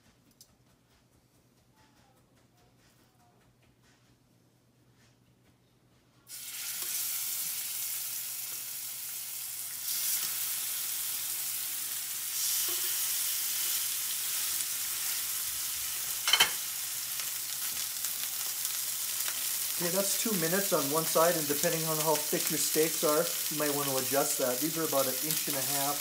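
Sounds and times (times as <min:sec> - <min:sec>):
steaks sizzling in a skillet: 0:06.3 - 0:26.0.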